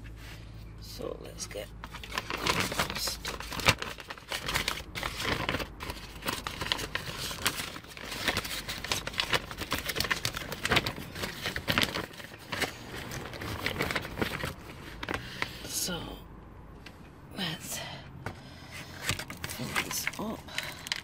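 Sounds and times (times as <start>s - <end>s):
plastic bag crinkling: 1.8s - 15.7s, 18.9s - 21.0s.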